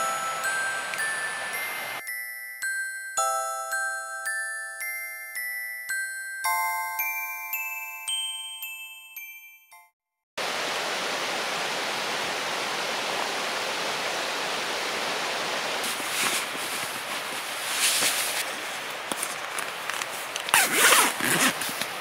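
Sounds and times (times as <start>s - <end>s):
steady hiss: 0.0s - 2.0s, 10.4s - 22.0s
sleeping bag fabric rustling: 15.8s - 22.0s.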